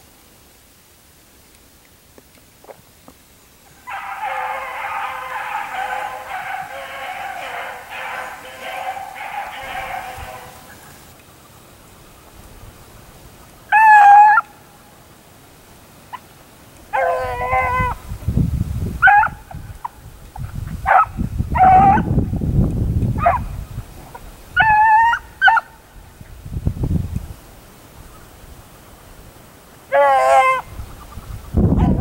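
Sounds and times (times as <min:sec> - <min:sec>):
hounds baying: 0:03.7 - 0:11.1, 0:13.7 - 0:14.5, 0:16.9 - 0:18.0, 0:19.0 - 0:20.0, 0:20.8 - 0:22.2, 0:23.2 - 0:23.6, 0:24.6 - 0:25.8, 0:29.9 - 0:30.7.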